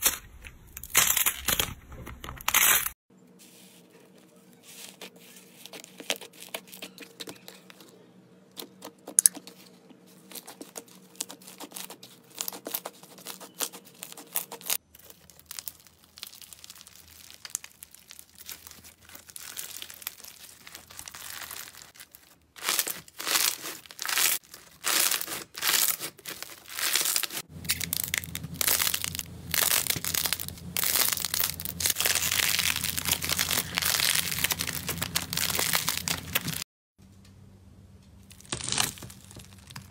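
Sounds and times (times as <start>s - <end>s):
slime crackling and popping: 10.3s - 36.6s, 38.3s - 39.9s.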